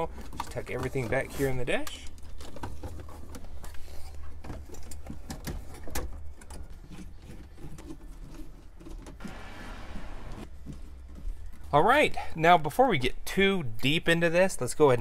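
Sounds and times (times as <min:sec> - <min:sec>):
low hum: 0:09.2 - 0:10.5.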